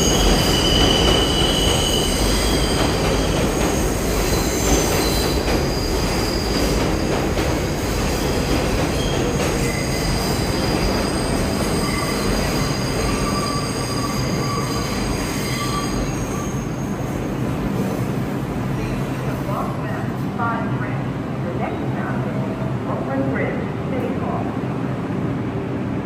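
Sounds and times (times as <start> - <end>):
train wheel squeal: 0.0 - 7.0, 8.2 - 17.3
train rumble: 0.0 - 15.2.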